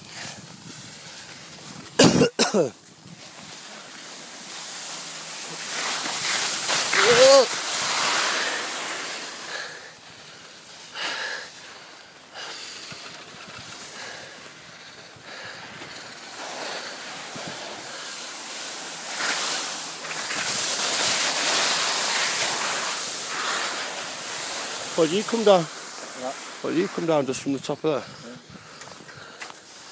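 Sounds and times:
wind rushing on microphone: 0.0 - 2.0
skis scraping over snow: 0.0 - 29.9.

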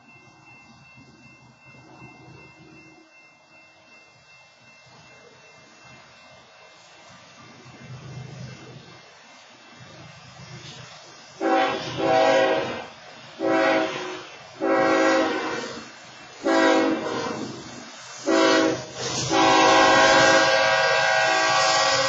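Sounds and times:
locomotive air horn blasts: 11.4 - 17.6, 18.2 - 22.0.

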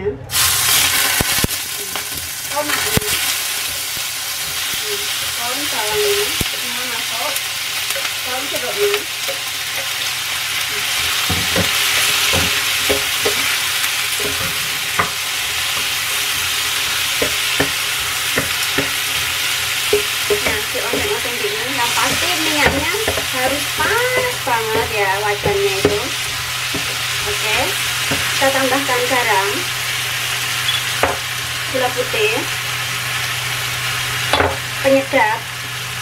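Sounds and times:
vegetables sizzling in hot oil: 0.3 - 36.0
wooden spatula scraping a pan: 10.8 - 29.6.

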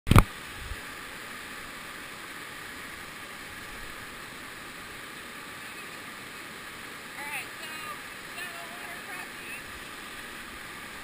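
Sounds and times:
rushing whitewater: 0.1 - 11.0.

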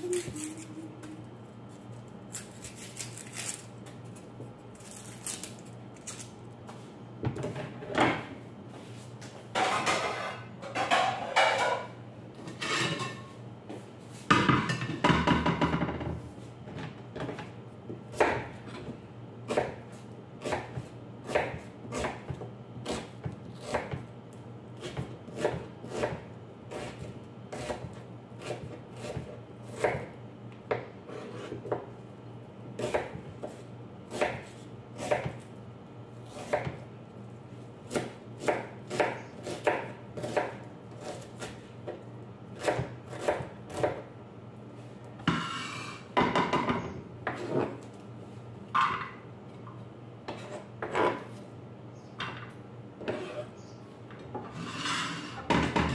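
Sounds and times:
knife chopping on plastic board: 42.6 - 44.0.

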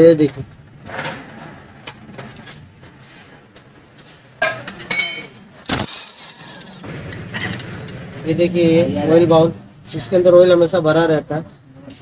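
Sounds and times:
metal engine parts clinking: 0.0 - 2.9.

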